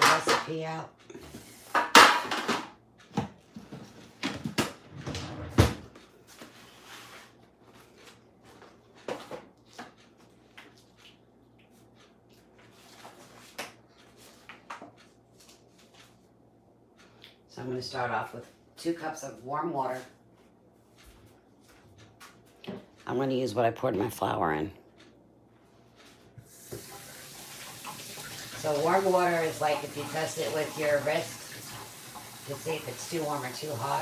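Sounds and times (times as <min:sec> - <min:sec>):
kitchen items knocking and clattering: 0:00.0 - 0:00.8, 0:01.6 - 0:06.0.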